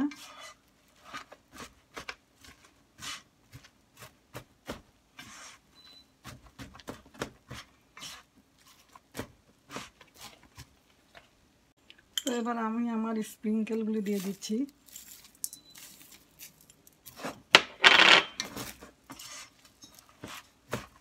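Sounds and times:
spatula scraping in frying pan: 0:00.0 - 0:01.8, 0:02.4 - 0:03.3, 0:05.2 - 0:05.7, 0:07.5 - 0:08.9, 0:18.4 - 0:20.6.

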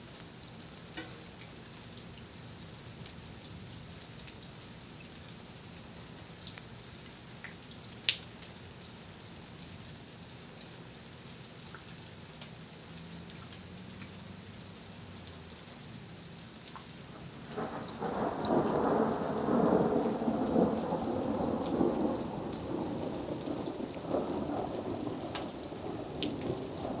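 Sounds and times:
steady rain: 0:00.0 - 0:27.0
thunder rolling: 0:17.5 - 0:27.0.

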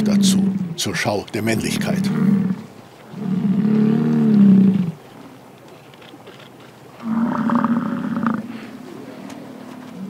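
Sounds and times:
bison bull bellowing: 0:00.0 - 0:00.9, 0:01.5 - 0:05.0.

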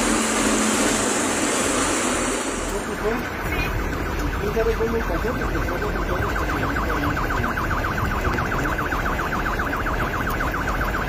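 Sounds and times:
heavy rain and floodwater hiss: 0:00.0 - 0:03.9
car alarm warbling: 0:00.0 - 0:11.0.

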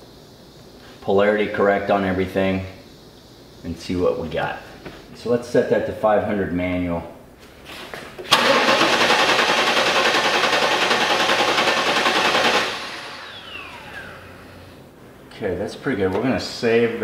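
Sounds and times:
starter motor cranking engine: 0:08.3 - 0:14.4.

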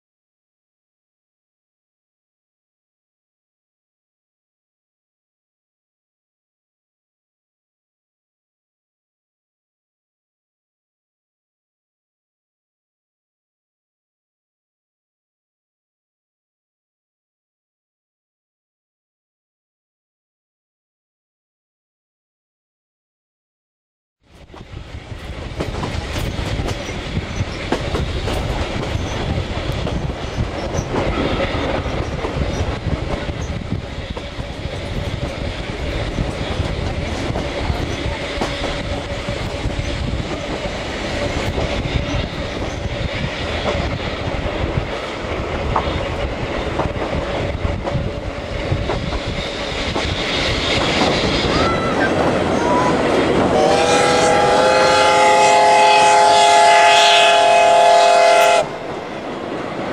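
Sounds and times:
train wheels rumbling on rail: 0:24.2 - 0:59.9.

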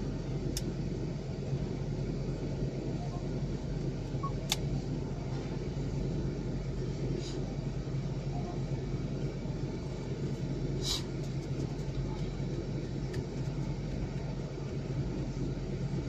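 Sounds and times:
car engine idling: 0:00.0 - 0:16.0.

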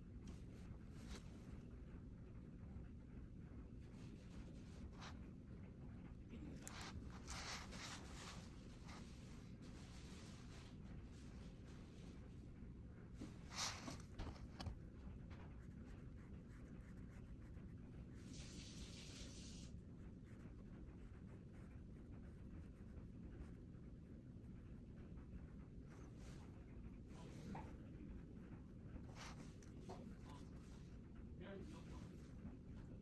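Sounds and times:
low steady hum: 0:00.0 - 0:33.0
brush scratching across paper: 0:06.6 - 0:12.2, 0:13.2 - 0:30.9.

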